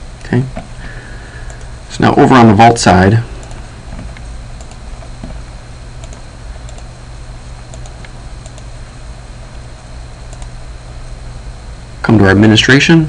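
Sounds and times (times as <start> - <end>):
steady low hum: 0.0 - 13.0
faint computer clicks: 1.4 - 1.7, 3.4 - 5.4, 6.0 - 6.9, 7.7 - 8.7, 10.3 - 10.6.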